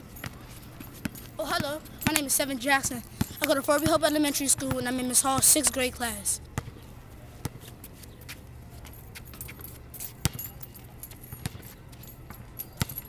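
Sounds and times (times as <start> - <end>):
basketball bouncing on hard court: 1.0 - 5.8, 6.6 - 6.8, 10.2 - 10.5, 11.3 - 11.7
light metallic jangling: 8.9 - 13.0.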